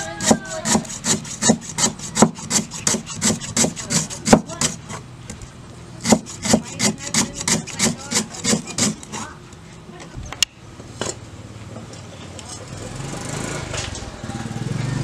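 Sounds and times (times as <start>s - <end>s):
cleaver chopping on wooden block: 0.2s - 4.8s, 6.0s - 9.0s.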